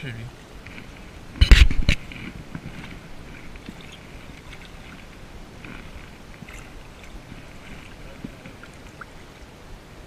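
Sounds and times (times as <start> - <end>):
water lapping: 0.3 - 10.0
fish thrashing in water: 2.5 - 9.2.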